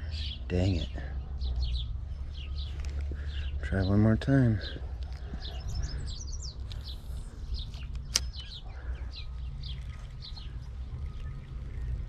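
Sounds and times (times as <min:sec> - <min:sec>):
small birds chirping: 0:00.0 - 0:12.0
steady low rumble: 0:00.0 - 0:12.0
sharp click: 0:07.7 - 0:08.6.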